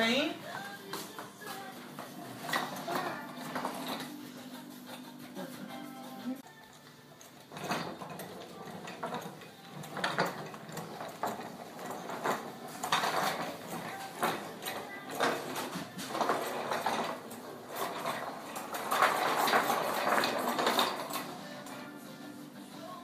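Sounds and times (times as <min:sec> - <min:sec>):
wooden toy train clattering on tiles: 0:02.0 - 0:05.4, 0:07.4 - 0:22.0.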